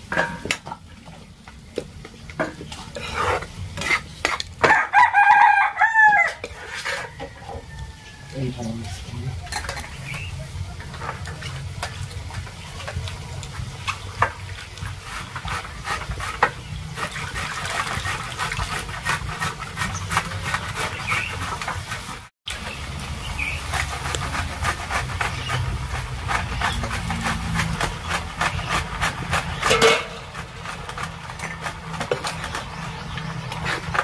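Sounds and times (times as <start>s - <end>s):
wood fire crackling: 0.0s - 34.0s.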